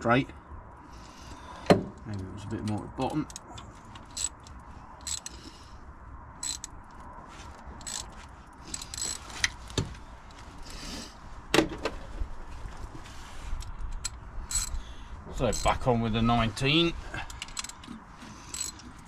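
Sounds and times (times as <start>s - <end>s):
metal tools clinking: 7.8s - 9.3s, 14.0s - 14.8s, 18.5s - 18.8s.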